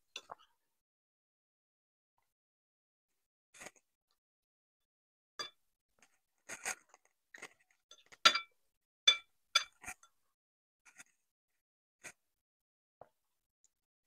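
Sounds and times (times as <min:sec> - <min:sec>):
metal cutlery clinking on ceramic bowls: 0:07.4 - 0:08.5, 0:09.1 - 0:10.1.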